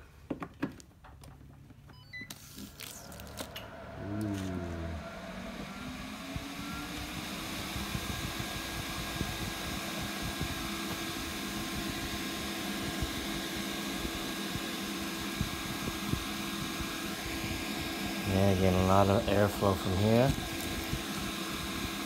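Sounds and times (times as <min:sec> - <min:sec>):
cooling fans whirring: 0:01.4 - 0:22.0.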